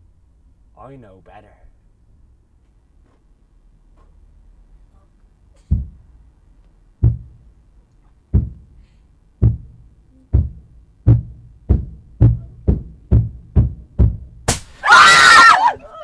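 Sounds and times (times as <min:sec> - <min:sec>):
heavy booming thuds: 0:05.6 - 0:06.2, 0:07.0 - 0:07.6, 0:08.3 - 0:08.8, 0:09.4 - 0:14.7.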